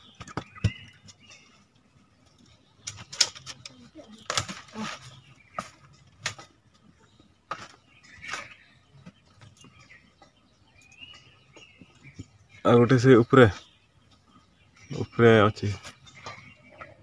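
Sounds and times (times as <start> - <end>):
leafy branches rustling: 2.4 - 6.9
branches knocking on bamboo tray: 2.8 - 6.8, 7.4 - 10.3.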